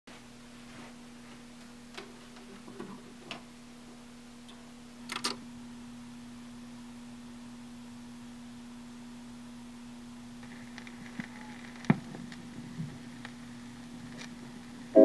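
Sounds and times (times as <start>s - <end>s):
steady low hum: 0.1s - 15.0s
record player clicks and knocks: 5.1s - 5.4s.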